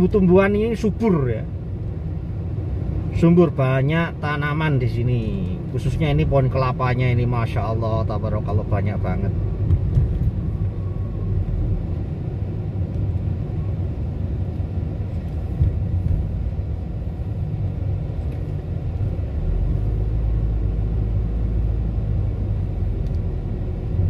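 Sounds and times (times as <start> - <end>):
car cabin road and engine noise: 0.0 - 24.0.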